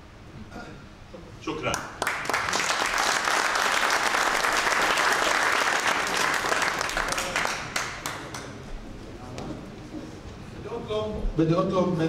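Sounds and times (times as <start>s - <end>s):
audience applauding: 1.7s - 8.6s.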